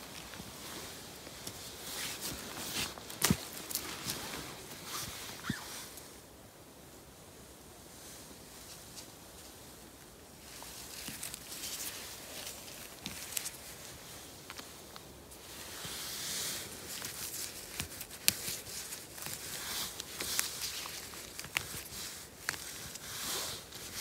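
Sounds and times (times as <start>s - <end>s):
small twig clicks: 10.5s - 13.8s, 16.9s - 23.1s.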